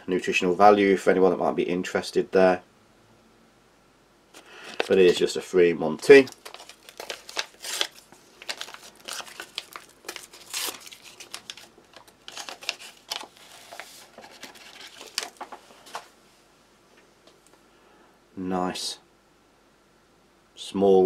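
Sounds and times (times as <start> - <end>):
paper sachet crinkling and tearing: 4.6 - 5.4, 6.0 - 16.0.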